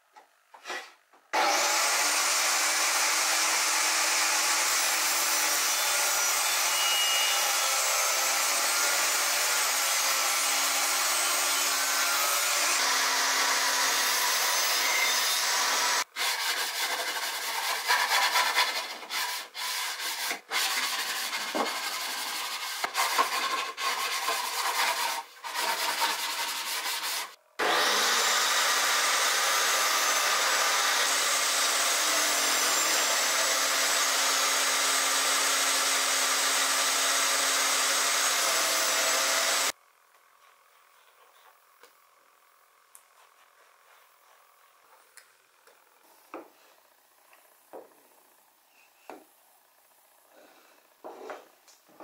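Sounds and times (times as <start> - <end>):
table saw motor running: 1.4 - 16.1, 27.6 - 39.8
hand sanding strokes: 15.8 - 27.4.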